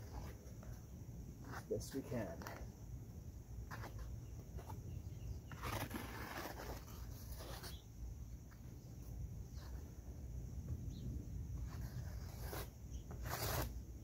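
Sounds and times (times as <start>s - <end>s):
trowel scraping wet concrete: 5.5s - 7.8s, 11.6s - 13.7s.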